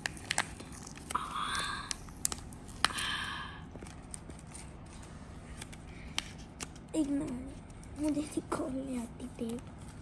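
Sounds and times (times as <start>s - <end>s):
paper wrapping crinkling: 0.0s - 8.6s
paper rustling: 3.7s - 8.6s.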